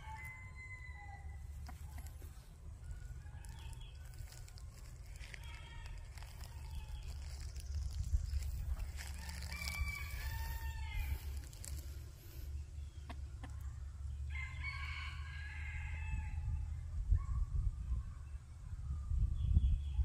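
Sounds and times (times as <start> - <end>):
rooster crowing: 0.0 - 2.0, 5.2 - 7.4, 8.8 - 11.8, 14.3 - 16.5
steady low rumble: 0.0 - 15.3.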